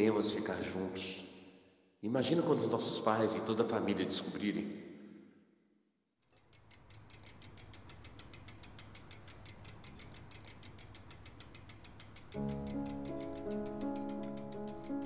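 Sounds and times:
mechanical ticking: 6.2 - 15.0.

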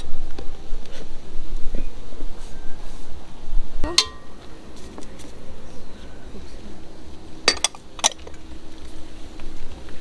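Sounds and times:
utensils clinking on cookware: 3.8 - 4.4.

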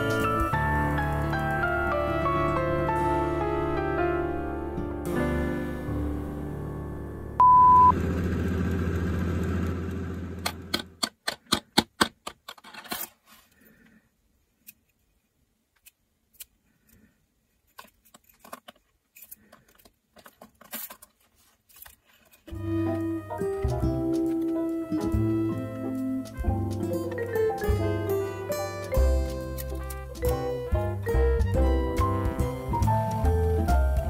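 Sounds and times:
short steady beep: 7.4 - 7.9.

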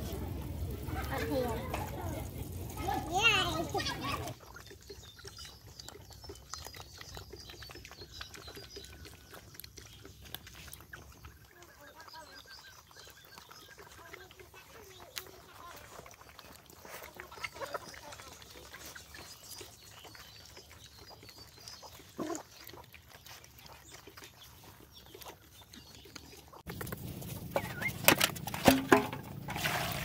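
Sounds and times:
hens clucking: 26.7 - 29.5.

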